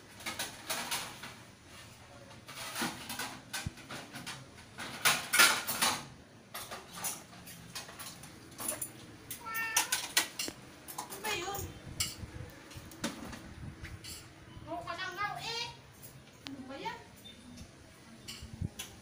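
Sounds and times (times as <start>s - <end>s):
cats meowing: 9.3s - 10.2s.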